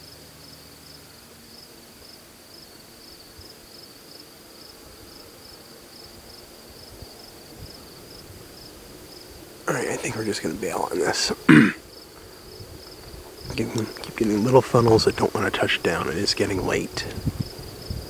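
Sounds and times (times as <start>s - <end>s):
crickets chirping: 0.0s - 18.0s
faint background noise: 0.0s - 18.0s.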